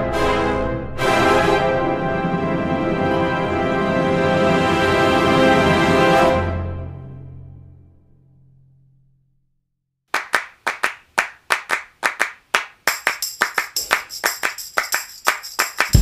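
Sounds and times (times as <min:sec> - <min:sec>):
handclap-like percussion: 0:10.1 - 0:16.0.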